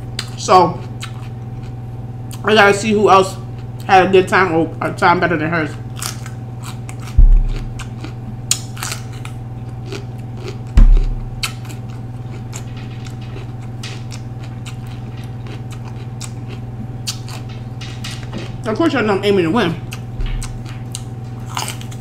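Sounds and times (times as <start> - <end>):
steady low hum: 0.0 - 22.0
person chewing crisp vegetable: 0.2 - 2.5, 3.3 - 3.9, 5.7 - 17.8, 19.9 - 22.0
dull low thumps: 7.2 - 8.4, 10.8 - 11.5, 19.9 - 21.2.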